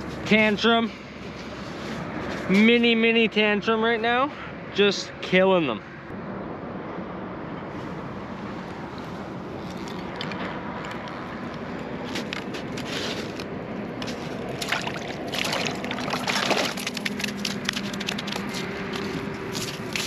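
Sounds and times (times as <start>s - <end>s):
fish thrashing in water: 14.1s - 19.0s.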